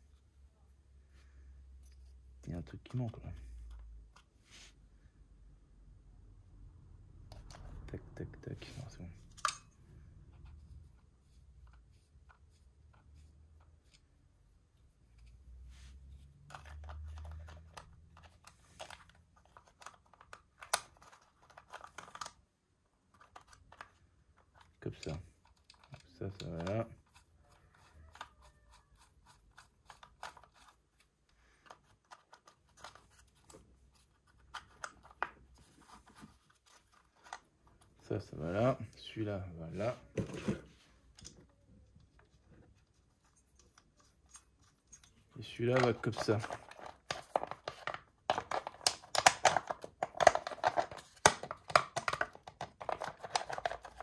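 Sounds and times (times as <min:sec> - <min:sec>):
plastic pieces clicking and scraping: 0:16.4 - 0:22.4, 0:23.0 - 0:37.5, 0:43.3 - 0:54.0.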